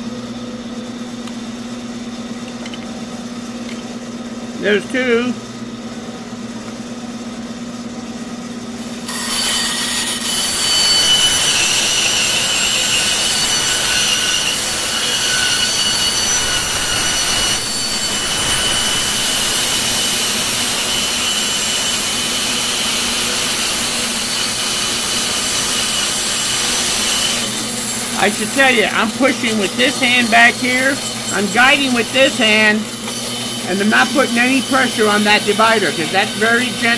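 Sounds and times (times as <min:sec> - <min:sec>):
bandsaw cutting wood: 0:08.8 - 0:36.9.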